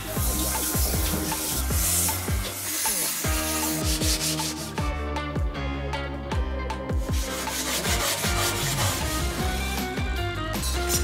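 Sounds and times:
sanding on sandpaper by hand: 0.0 - 4.8, 7.1 - 9.6, 10.6 - 11.0
background music with steady beat: 0.0 - 11.0.

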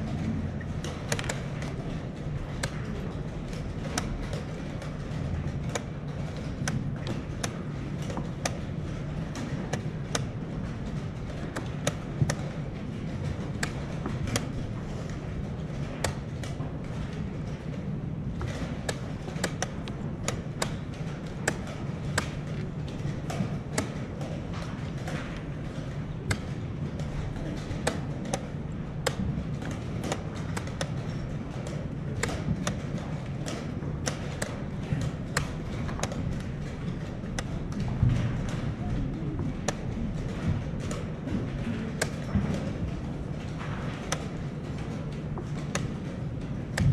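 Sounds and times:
low hall hum: 0.0 - 46.9
chess pieces knocking on board: 0.6 - 46.9
chess clock buttons slapped: 0.7 - 1.8, 3.5 - 12.6, 18.4 - 25.5, 26.2 - 38.6, 44.0 - 46.1, 46.7 - 46.9.

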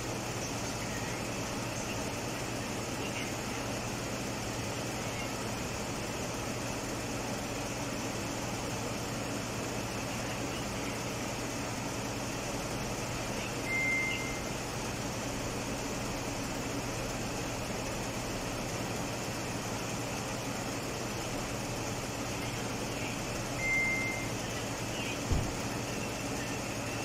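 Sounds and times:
short high beep: 13.6 - 14.4, 23.6 - 24.3.

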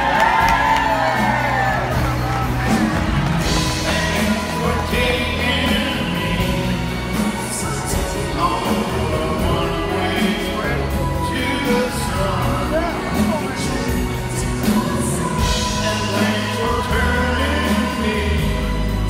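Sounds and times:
live band playing a ballad: 0.0 - 19.0
man crooning into a microphone: 7.4 - 14.9.

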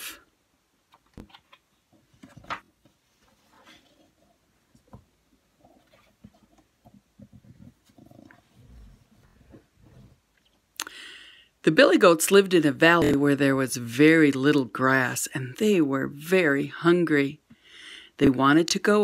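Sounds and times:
book pages turning: 1.2 - 4.2.

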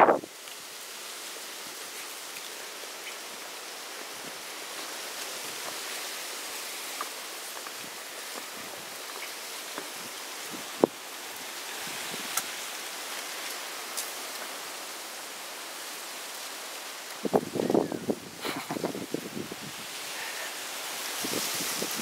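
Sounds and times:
outdoor hiss: 0.0 - 22.0
footsteps on dirt trail: 4.2 - 12.6.

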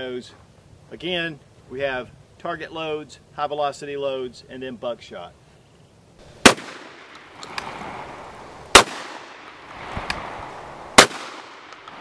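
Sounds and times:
shotgun shots echoing: 6.4 - 12.0.

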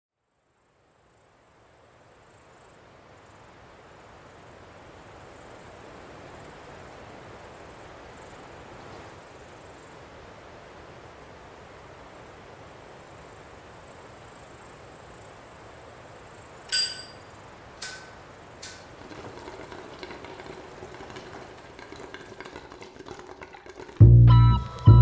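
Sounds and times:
faint hiss: 0.2 - 24.0
sharp metallic clinks: 16.7 - 18.8
music with bass and guitar: 24.0 - 25.0.

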